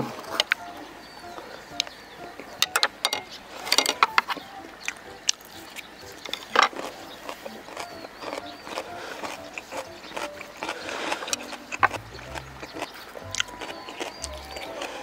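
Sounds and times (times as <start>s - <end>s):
mouth clicks and chewing: 3.6s - 15.0s
loud bite: 6.4s - 15.0s.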